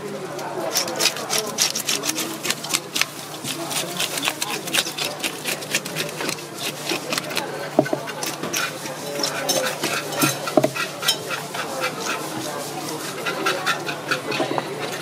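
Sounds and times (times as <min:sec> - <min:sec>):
fish scaler scraping: 0:00.4 - 0:15.0.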